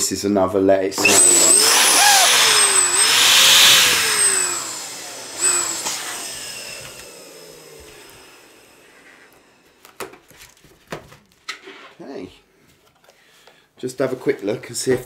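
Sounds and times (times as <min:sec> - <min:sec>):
electric balloon pump running: 0:01.0 - 0:10.0.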